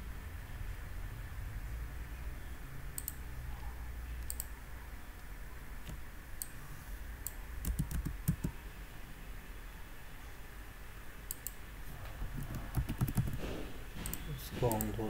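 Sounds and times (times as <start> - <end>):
low steady hum: 0.0 - 15.0
computer mouse clicks: 3.0 - 4.6, 7.2 - 8.6, 11.3 - 11.6, 12.4 - 13.4
keyboard keystrokes: 7.6 - 8.5, 12.4 - 15.0.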